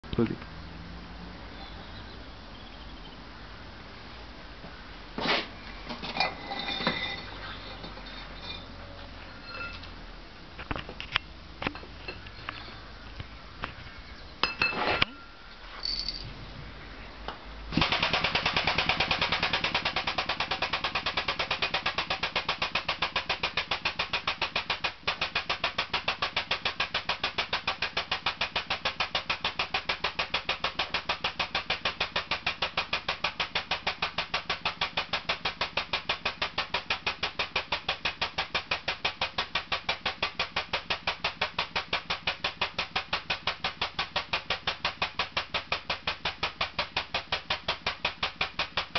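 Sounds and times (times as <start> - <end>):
air pump pulsing: 17.7 - 48.9.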